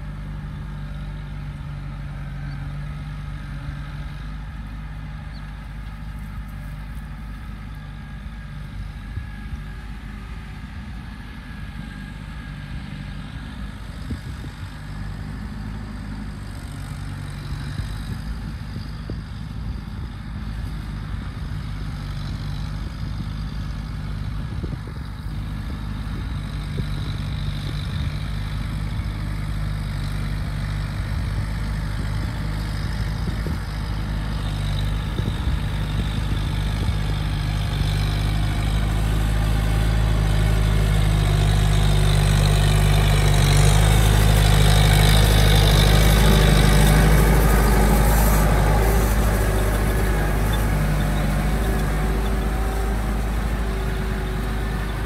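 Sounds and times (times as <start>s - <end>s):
tiller churning soil: 0.0s - 10.1s, 22.0s - 55.0s
tractor diesel engine running: 0.0s - 55.0s.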